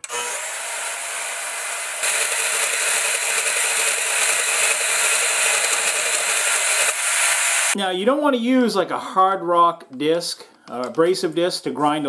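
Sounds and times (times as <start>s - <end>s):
bandsaw cutting metal: 0.0s - 7.8s.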